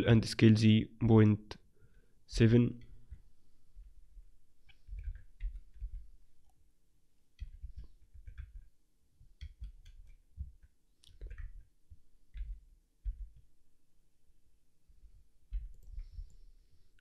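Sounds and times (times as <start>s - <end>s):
mouse and keyboard clicks: 9.3s - 11.7s.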